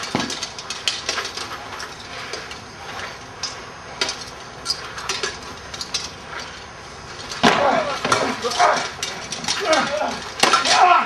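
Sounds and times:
metal swords and armour clinking: 0:07.2 - 0:11.0.

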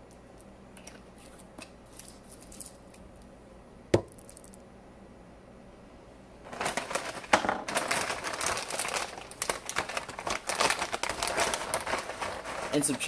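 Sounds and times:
plastic bag crinkling: 0:06.5 - 0:13.0.

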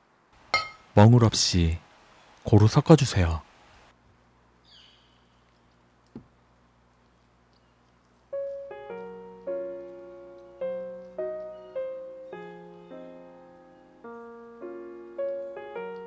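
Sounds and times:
slow piano music: 0:08.3 - 0:16.0.

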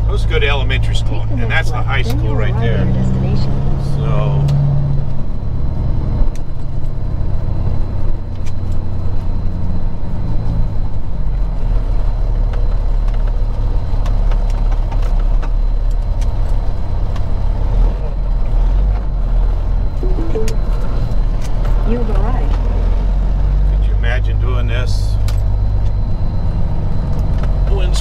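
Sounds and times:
truck diesel engine droning: 0:00.0 - 0:13.8.

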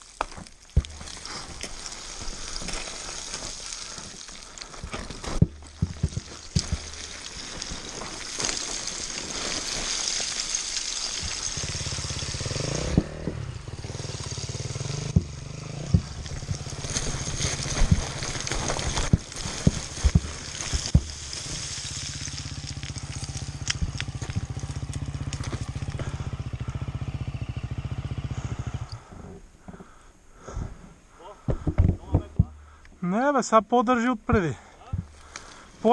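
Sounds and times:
stones knocking: 0:00.0 - 0:13.4, 0:14.8 - 0:26.1, 0:31.4 - 0:32.8, 0:34.2 - 0:35.6
motorcycle engine: 0:11.2 - 0:30.0.

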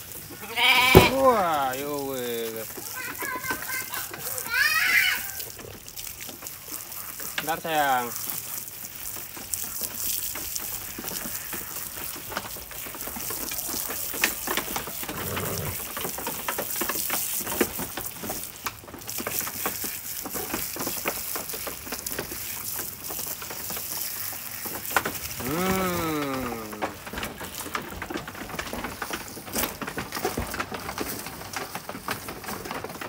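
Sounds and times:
hose water spraying: 0:00.0 - 0:33.0
water splashing on straw: 0:00.0 - 0:33.0.

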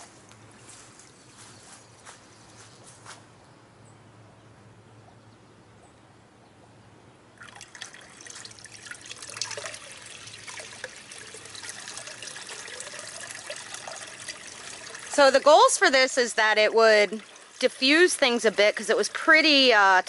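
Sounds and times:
water trickling and splashing: 0:07.4 - 0:20.0.

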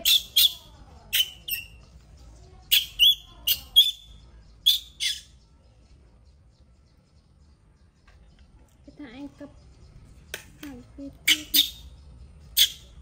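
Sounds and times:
baby monkey squealing: 0:00.0 - 0:01.8, 0:02.7 - 0:05.3, 0:11.2 - 0:11.9, 0:12.5 - 0:13.0.

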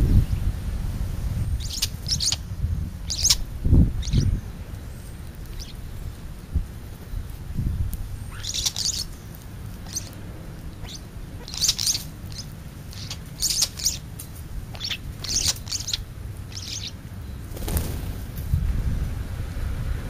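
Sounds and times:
low rumble of wind: 0:00.0 - 0:20.0
songbirds chirping: 0:01.2 - 0:20.0
bird wings fluttering: 0:17.5 - 0:18.6.

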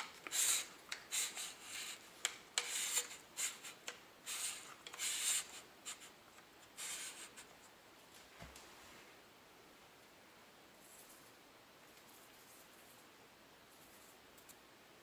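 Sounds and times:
metal threads scraping: 0:00.0 - 0:06.1.

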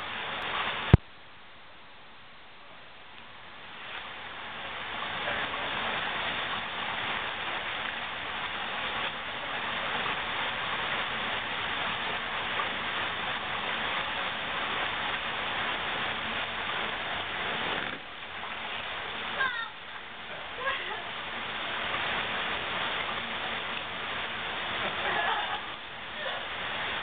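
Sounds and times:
creek water over small waterfall: 0:00.0 - 0:27.0.

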